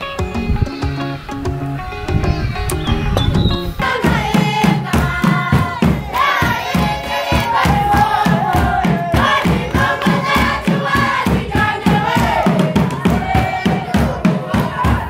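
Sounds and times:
steady drumbeat: 0:00.1 - 0:15.0
group singing: 0:03.4 - 0:15.0.

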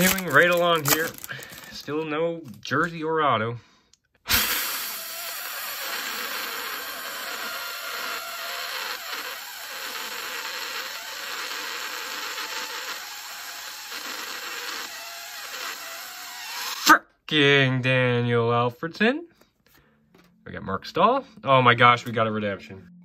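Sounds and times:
small motor whirring hiss: 0:04.3 - 0:16.8.

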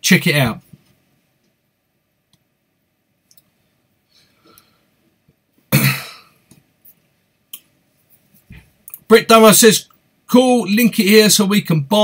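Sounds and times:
man coughing: 0:05.7 - 0:06.4.

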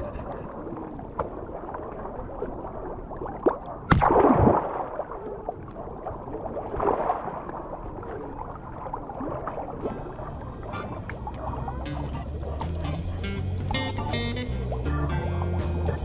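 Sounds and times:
water splashing and sloshing: 0:00.0 - 0:16.0.

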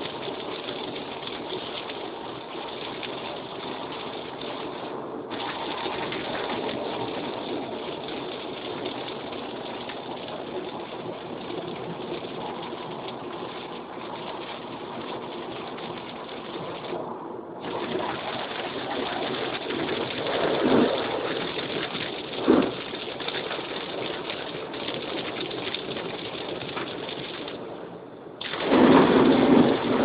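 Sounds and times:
rain on car body: 0:00.0 - 0:30.0.

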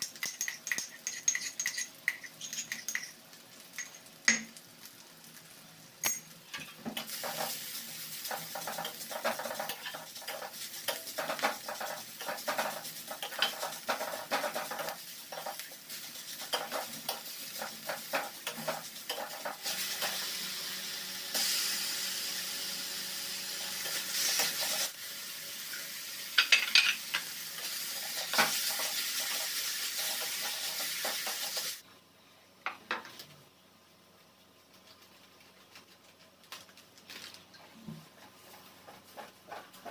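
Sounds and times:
food sizzling in wok: 0:00.0 - 0:31.8
spatula scraping pan: 0:38.1 - 0:39.9.

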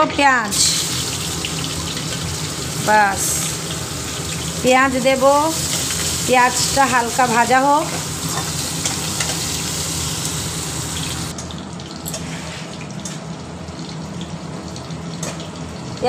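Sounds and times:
onions sizzling in hot oil: 0:00.5 - 0:11.3.

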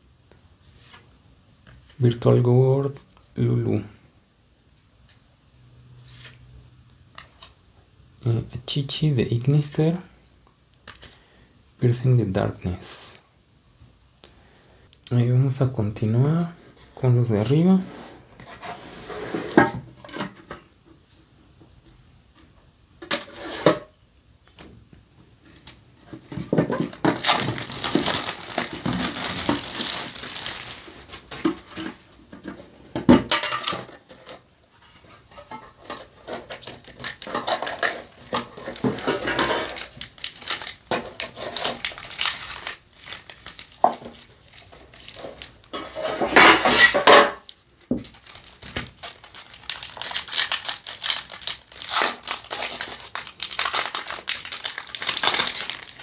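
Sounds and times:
plastic shrink-wrap crinkling: 0:26.1 - 0:31.8, 0:35.8 - 0:45.8, 0:46.7 - 0:56.0
foil packs rustling: 0:26.1 - 0:32.1, 0:35.8 - 0:47.0, 0:47.8 - 0:56.0
foil pack tearing open: 0:26.8 - 0:31.0, 0:36.6 - 0:39.0, 0:39.6 - 0:45.5, 0:48.0 - 0:56.0.

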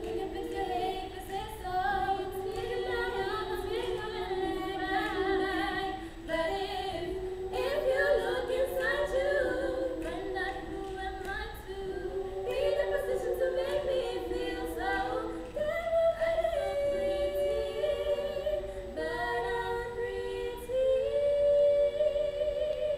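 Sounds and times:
choir singing a cappella: 0:00.0 - 0:22.9.

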